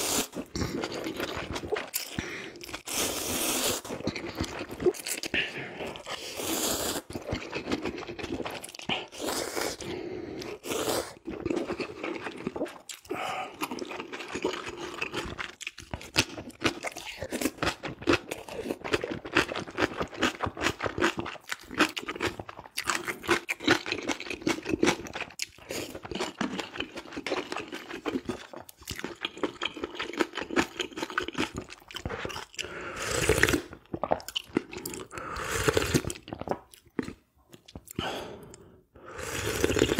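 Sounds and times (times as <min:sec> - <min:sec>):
person slurping noodles: 0:00.0 - 0:15.6, 0:29.4 - 0:37.2, 0:38.0 - 0:39.9
loud slurp of broth: 0:02.9 - 0:04.0, 0:05.4 - 0:07.2, 0:34.9 - 0:36.2, 0:39.1 - 0:39.9.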